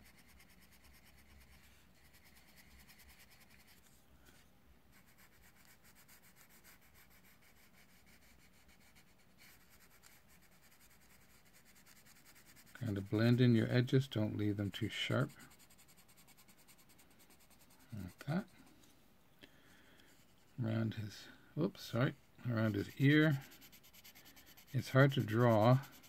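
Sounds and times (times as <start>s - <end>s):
pencil scratching on paper: 0.0s - 4.0s, 4.9s - 13.7s, 14.7s - 18.5s, 22.5s - 26.0s.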